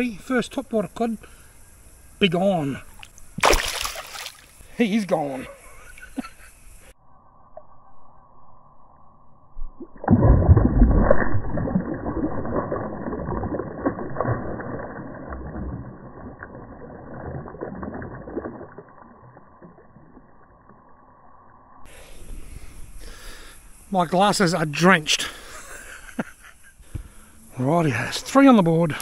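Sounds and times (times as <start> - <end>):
fish splashing in water: 2.9 - 4.6, 10.0 - 19.9.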